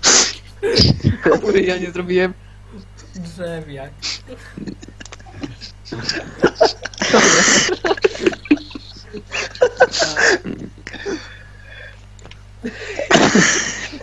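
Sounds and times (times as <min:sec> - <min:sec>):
indistinct voices on a call: 0:00.4 - 0:11.0.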